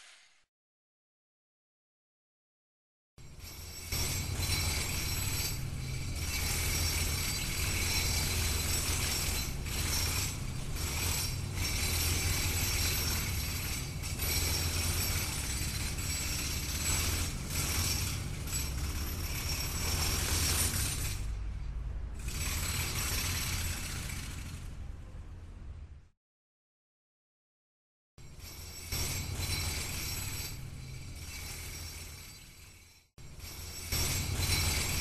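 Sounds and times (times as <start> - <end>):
construction machinery rattling: 3.5 - 21.4, 22.2 - 24.8, 28.3 - 35.0.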